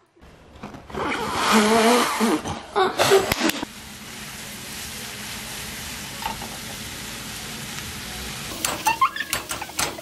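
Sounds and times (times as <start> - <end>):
sizzling hiss: 3.4 - 10.0.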